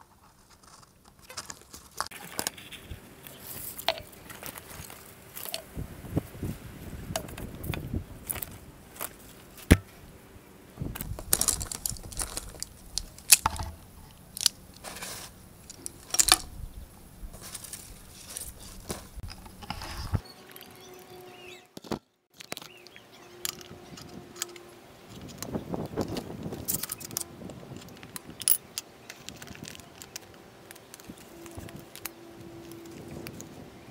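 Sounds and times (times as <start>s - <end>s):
wooden pieces clicking and knocking: 11.0s - 14.8s, 15.6s - 16.5s, 21.8s - 33.5s.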